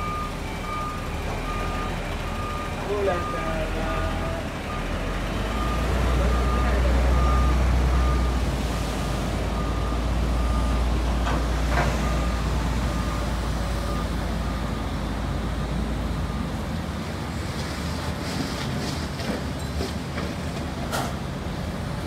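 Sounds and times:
reversing alarm beeping: 0:00.0 - 0:08.4, 0:09.5 - 0:11.0, 0:11.8 - 0:15.0
diesel engine running: 0:00.0 - 0:22.0.

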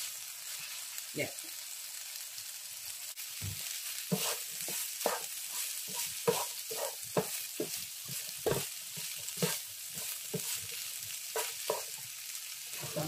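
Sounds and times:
vegetables sizzling in a frying pan: 0:00.0 - 0:13.0
wooden spatula scraping a pan: 0:03.4 - 0:12.1, 0:12.7 - 0:13.0.

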